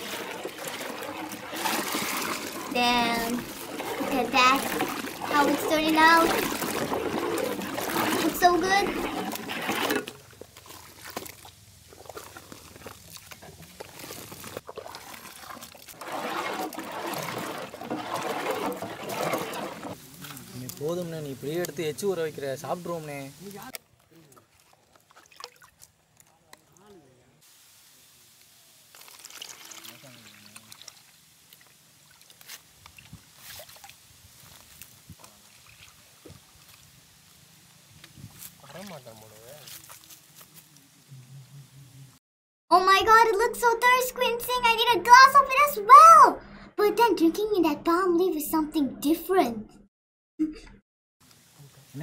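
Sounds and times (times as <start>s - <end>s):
liquid pouring and sloshing in a pot: 0.0s - 26.8s, 28.8s - 37.3s, 38.2s - 40.2s
person sipping: 8.9s - 20.5s.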